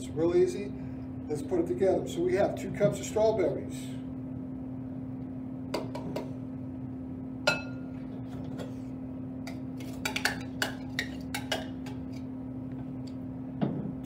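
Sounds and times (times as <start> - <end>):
glass clink: 7.5 - 7.9.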